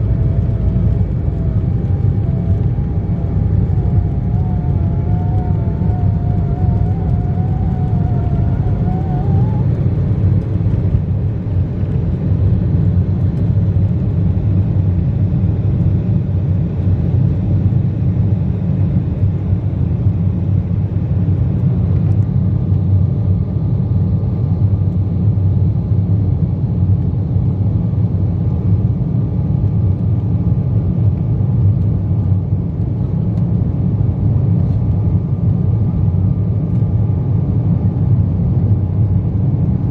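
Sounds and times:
wavering whine: 0.0s - 24.6s
jet engines rumbling in cabin: 0.0s - 39.9s.

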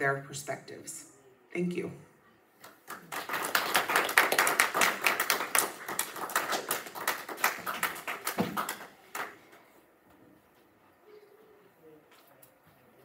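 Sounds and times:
audience applauding: 2.7s - 9.5s.

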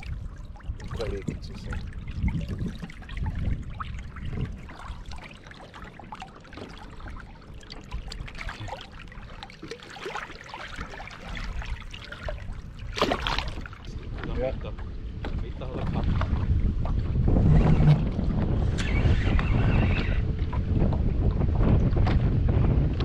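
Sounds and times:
water splashing and trickling: 0.0s - 22.3s
fish thrashing at surface: 12.2s - 13.7s.

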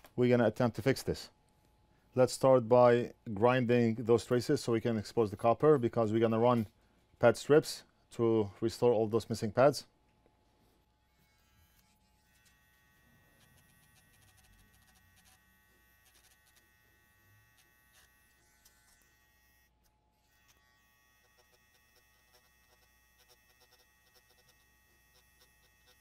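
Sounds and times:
grinding pen buzzing: 11.1s - 26.0s.

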